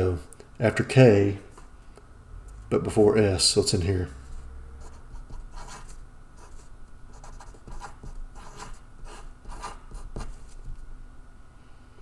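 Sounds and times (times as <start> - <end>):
marker writing on paper: 4.8 - 10.8.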